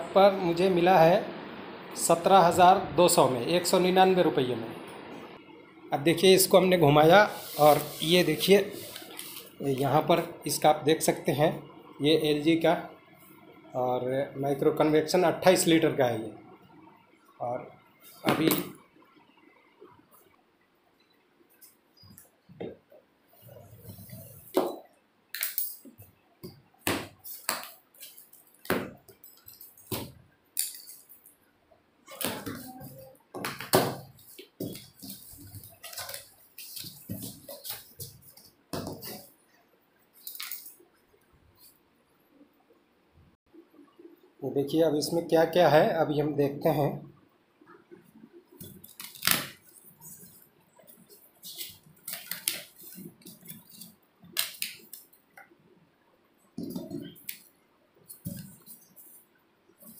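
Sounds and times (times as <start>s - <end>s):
plastic crinkling and rustling: 34.0s - 39.3s, 48.6s - 55.1s.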